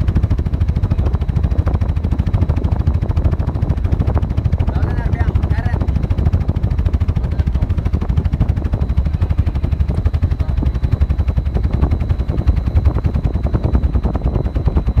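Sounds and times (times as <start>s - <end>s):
faint high whine: 6.8s - 15.0s.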